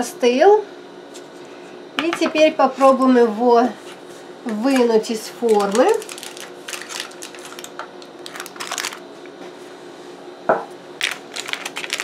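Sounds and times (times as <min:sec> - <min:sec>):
aluminium foil crinkling: 0:05.4 - 0:09.0, 0:11.0 - 0:12.0.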